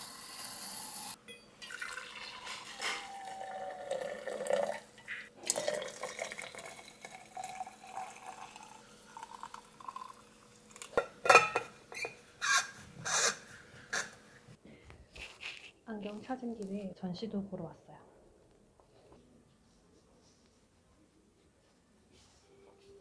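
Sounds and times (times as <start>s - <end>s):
water running: 1.0s - 10.9s
dishes and cutlery clinking: 11.0s - 12.2s.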